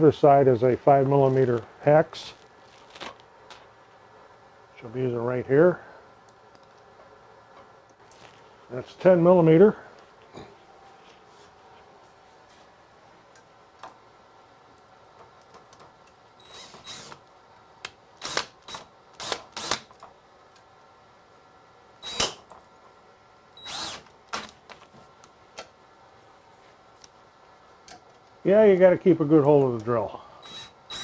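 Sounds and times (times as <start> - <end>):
cordless drill bursts: 16.4 - 17.2, 18.2 - 19.9, 22.0 - 22.4, 23.6 - 24.6, 30.4 - 31.0.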